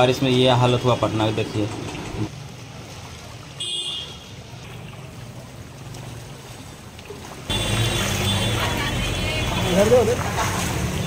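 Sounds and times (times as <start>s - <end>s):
people wading through water: 2.2s - 11.0s.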